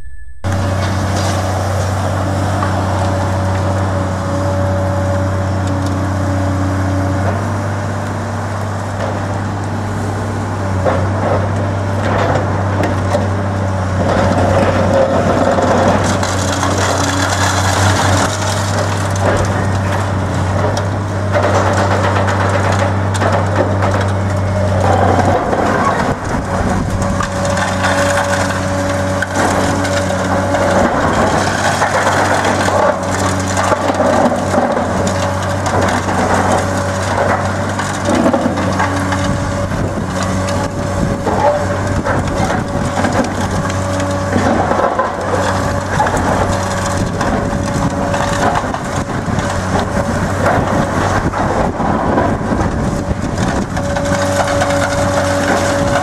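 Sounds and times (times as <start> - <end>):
high whine: 0.0 - 2.7
diesel engine hum: 0.0 - 56.0
concrete crushing and crunching: 7.3 - 56.0.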